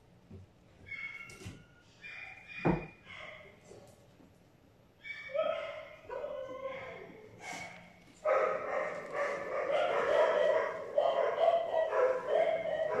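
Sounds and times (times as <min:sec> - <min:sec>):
dog whining and yipping: 0:00.8 - 0:03.4, 0:05.0 - 0:07.3.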